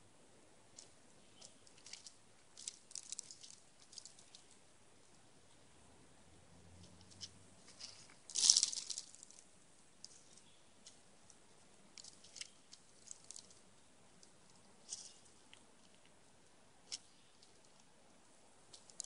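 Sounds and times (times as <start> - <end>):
squirrel crunching seeds: 0.7 - 5.2, 6.8 - 17.9, 18.6 - 19.0
scrabbling rustle of seed: 0.8 - 4.6, 6.8 - 11.0, 12.0 - 16.0.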